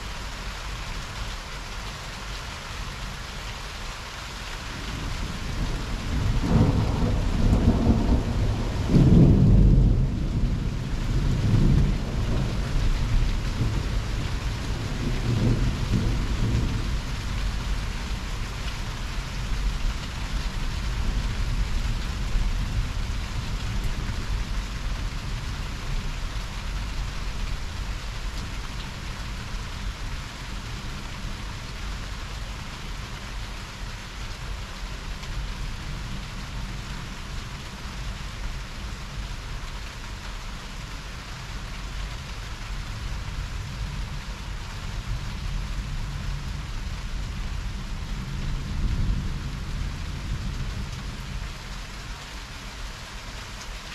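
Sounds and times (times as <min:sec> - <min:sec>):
heavy rain falling: 0:00.0 - 0:53.9
low thunder rumble: 0:04.8 - 0:18.4.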